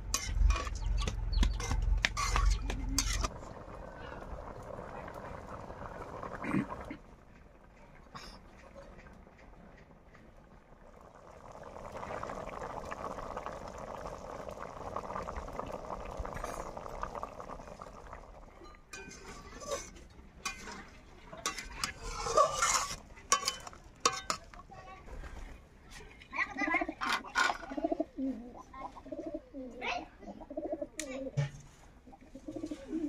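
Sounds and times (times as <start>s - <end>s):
curry boiling and bubbling: 0.0s - 29.7s, 30.4s - 33.0s
wooden spatula scraping metal pan: 19.0s - 24.4s.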